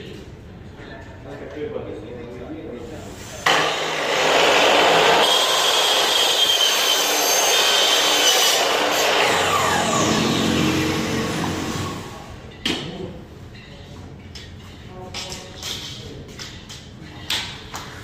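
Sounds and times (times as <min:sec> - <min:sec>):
miter saw cutting metal: 0:03.5 - 0:12.4.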